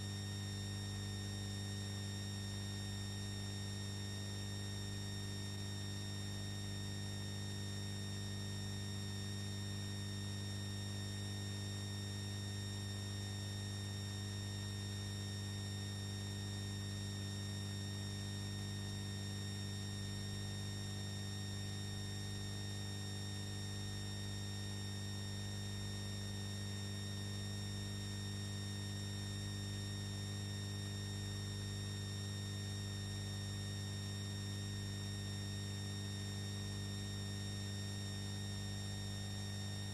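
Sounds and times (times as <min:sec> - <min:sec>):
electrical mains hum: 0:00.0 - 0:01.0.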